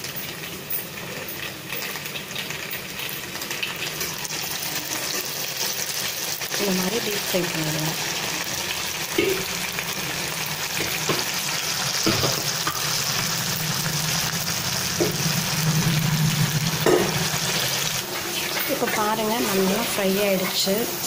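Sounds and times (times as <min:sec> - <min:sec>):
food deep-frying in oil: 0:00.0 - 0:21.0.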